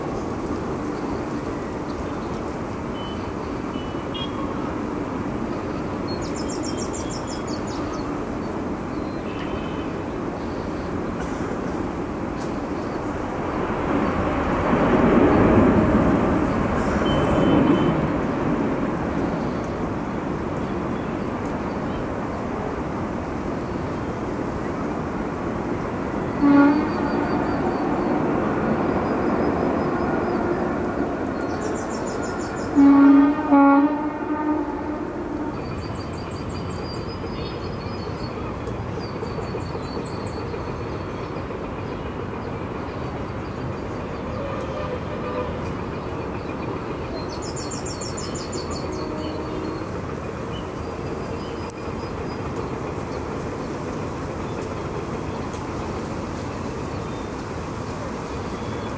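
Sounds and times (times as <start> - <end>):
distant jet engine rush: 0.0 - 58.9
horn honking: 26.4 - 27.5, 32.7 - 35.6.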